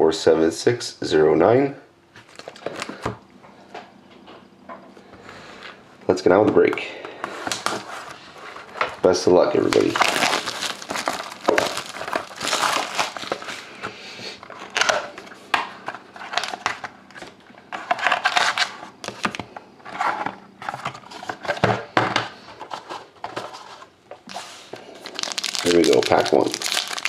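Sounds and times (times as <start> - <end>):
plastic shrink wrap crinkling: 2.2 - 3.1, 7.4 - 13.9, 24.3 - 27.0.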